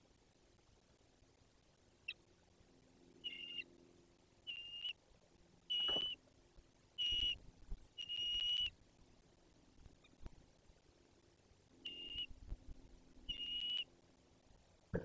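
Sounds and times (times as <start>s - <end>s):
eagle nestling peeping: 3.2s - 3.7s, 4.4s - 5.0s, 5.7s - 6.2s, 7.0s - 7.4s, 8.0s - 8.8s, 11.8s - 12.5s, 13.2s - 13.9s.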